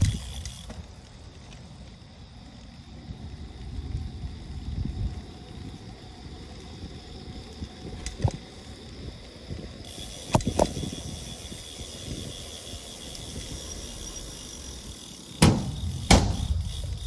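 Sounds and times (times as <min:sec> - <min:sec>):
wheels rumbling over pavement: 0:00.0 - 0:17.0
sharp knocks over bumps: 0:15.4 - 0:16.5.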